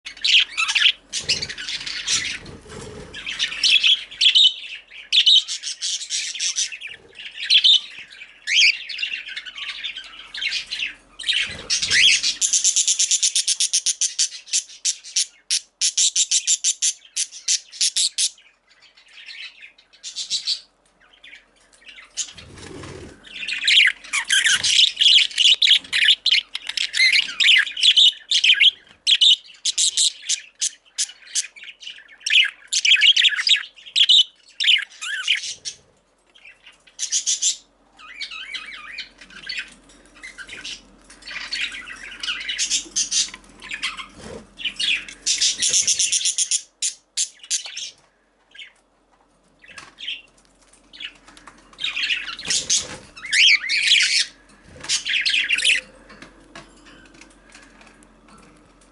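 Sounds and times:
budgerigar chirping and squawking: 0:00.1 - 0:18.4, 0:23.3 - 0:35.8, 0:37.0 - 0:47.9, 0:51.8 - 0:55.8.

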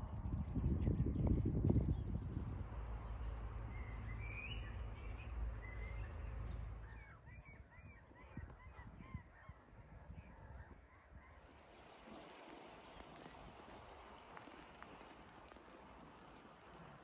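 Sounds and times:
low rumble: 0:00.0 - 0:07.2.

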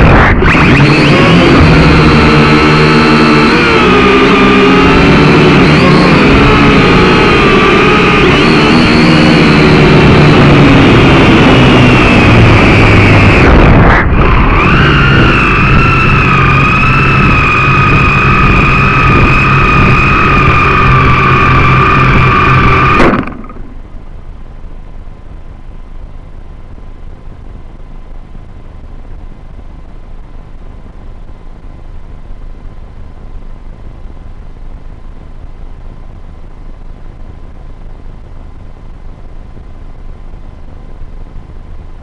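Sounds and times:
drone propellers whining: 0:00.0 - 0:24.1.

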